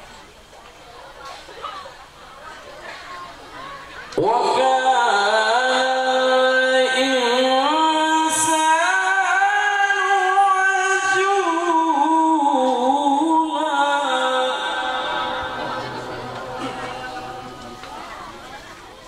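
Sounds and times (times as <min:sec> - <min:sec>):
man reciting melodically: 0:04.2 - 0:18.0.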